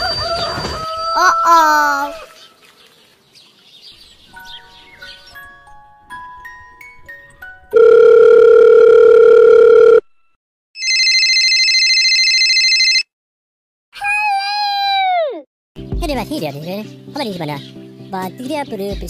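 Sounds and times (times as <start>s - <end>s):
steady telephone tone: 7.7s - 10.2s, 10.8s - 13.1s
dialing beeps: 7.8s - 10.1s, 10.8s - 13.0s.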